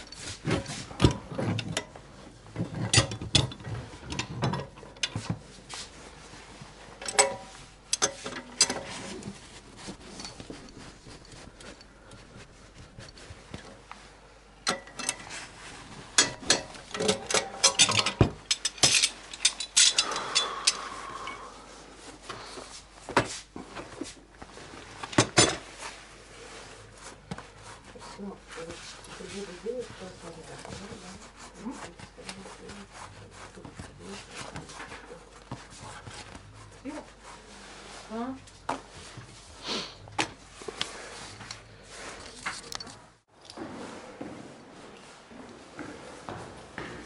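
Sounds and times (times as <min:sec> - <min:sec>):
metal hand tools clinking: 0:16.2 - 0:21.4.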